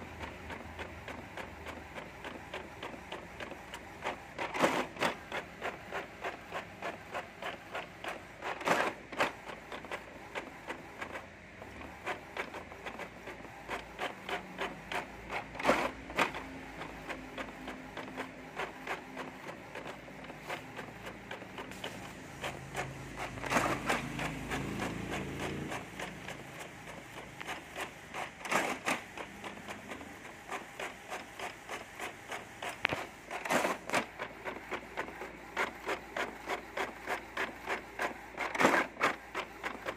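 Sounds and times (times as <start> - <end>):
printer clacks: 0.0 - 39.9.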